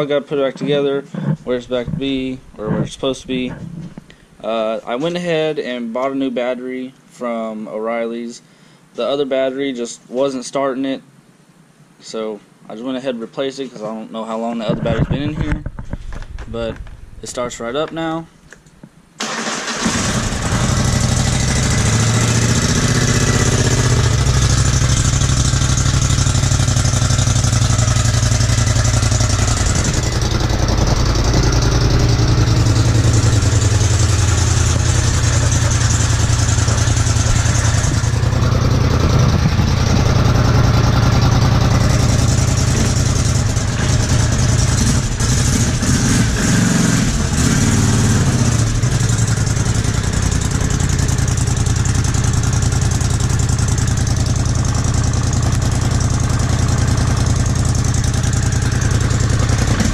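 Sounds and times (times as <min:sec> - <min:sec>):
atv engine idling: 0:19.7 - 0:59.9.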